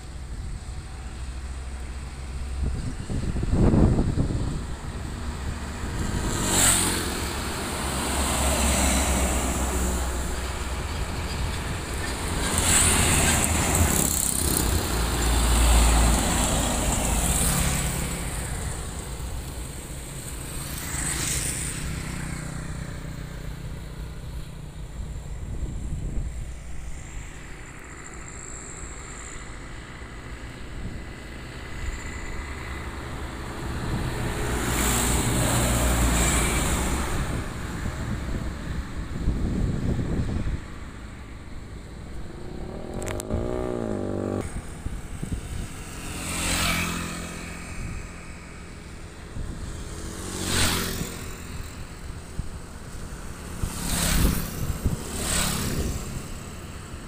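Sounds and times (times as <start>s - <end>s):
motorcycles passing: 0.2s - 57.0s
heavy trucks passing: 2.2s - 20.5s, 32.2s - 48.5s.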